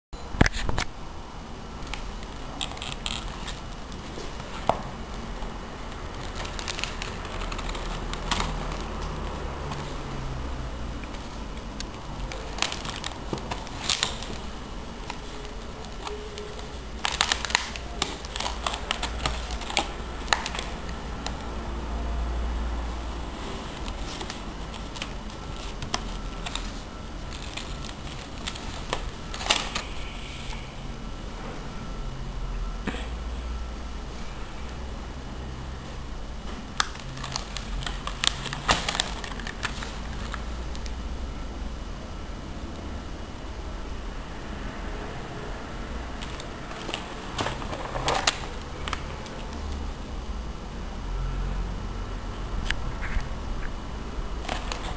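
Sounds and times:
paper crackling and rustling: 0:01.7 - 0:30.0, 0:36.4 - 0:41.0, 0:46.1 - 0:50.0, 0:54.4 - 0:54.9
sharp paper snaps: 0:11.8 - 0:21.4, 0:36.7 - 0:40.9.

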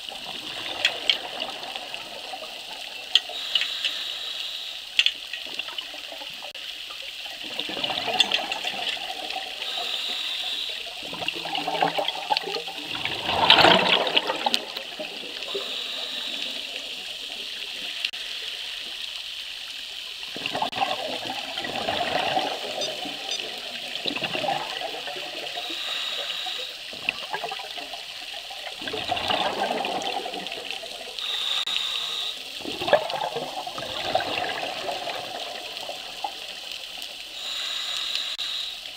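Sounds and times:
hissing regulator inhalations: 0:02.9 - 0:05.4, 0:09.5 - 0:11.0, 0:13.6 - 0:18.8, 0:25.3 - 0:26.9, 0:31.1 - 0:32.6, 0:37.1 - 0:38.9
bubbling exhaled air: 0:07.5 - 0:18.1, 0:20.4 - 0:38.7.

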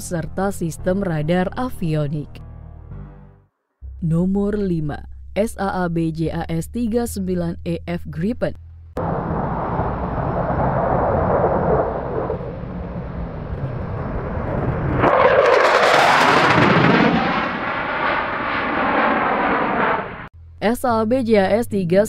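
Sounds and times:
fighter jet flying past: 0:09.0 - 0:20.3.

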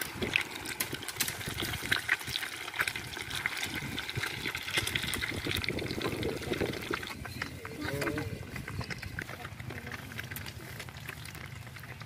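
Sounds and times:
hot oil sizzling: 0:00.0 - 0:07.4.

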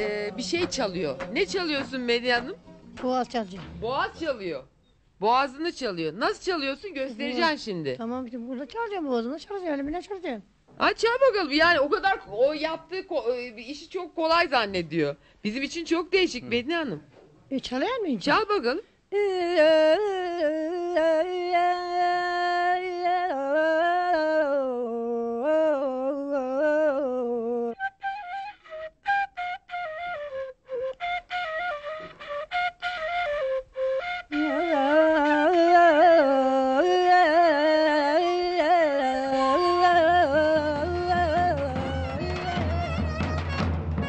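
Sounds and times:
wooden flute playing: 0:27.8 - 0:36.1, 0:39.2 - 0:43.8.

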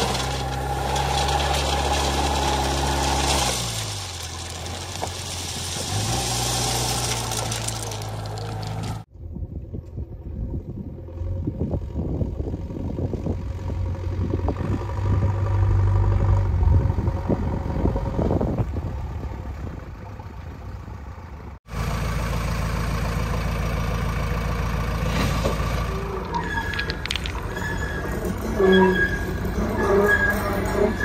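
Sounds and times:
diesel engine running: 0:10.4 - 0:31.0
metal rattles and clanks: 0:26.0 - 0:31.0.

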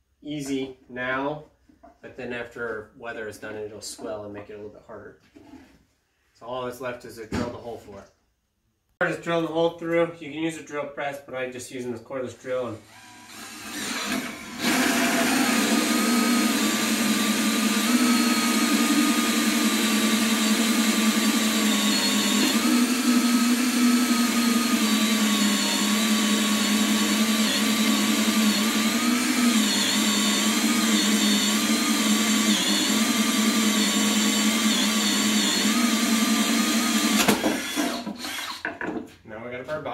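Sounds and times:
cordless drill boring wood: 0:12.8 - 0:38.8.

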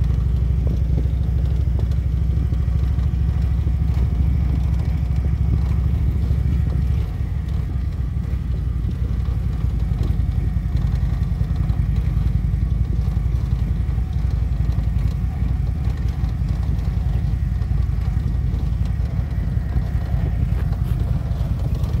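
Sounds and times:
motorcycle engine running: 0:00.0 - 0:22.0
road noise: 0:00.0 - 0:22.0
wind buffeting the microphone: 0:00.0 - 0:22.0.

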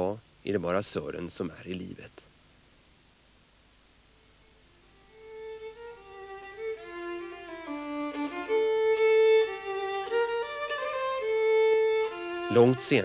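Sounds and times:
fiddle melody: 0:04.9 - 0:13.0.

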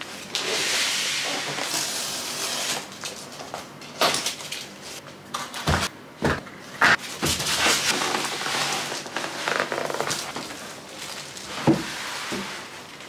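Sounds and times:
cardboard rustling and scraping: 0:06.8 - 0:12.8.

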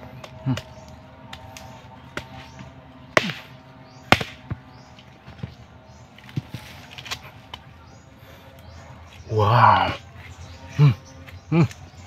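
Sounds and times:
machete chopping into fruit: 0:00.2 - 0:05.6, 0:06.2 - 0:07.6.

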